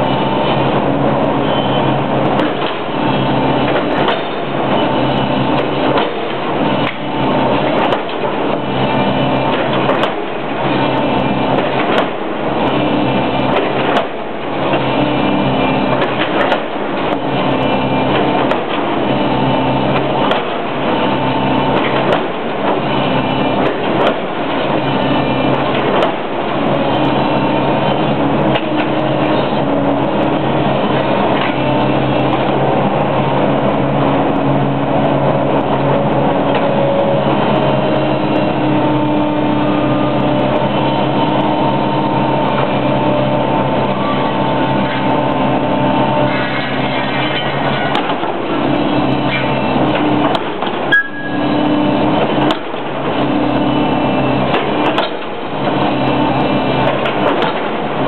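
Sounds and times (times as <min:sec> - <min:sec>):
excavator diesel engine: 0:00.0 - 0:58.0.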